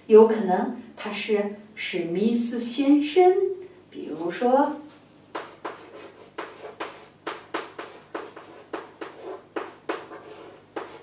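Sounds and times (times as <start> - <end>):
chalk strokes on chalkboard: 5.3 - 11.0.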